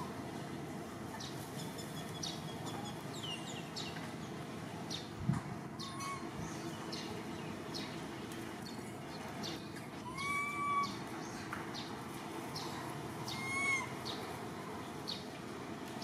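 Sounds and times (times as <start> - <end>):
infant monkey crying: 9.9 - 11.1, 12.6 - 14.8.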